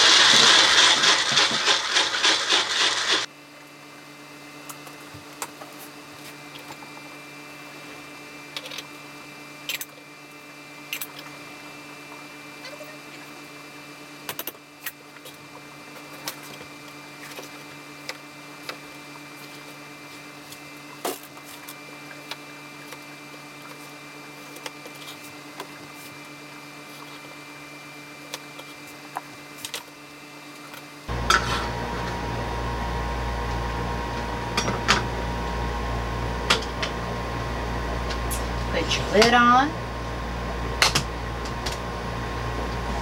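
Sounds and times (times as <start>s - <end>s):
steady electrical hum: 31.1s - 43.0s.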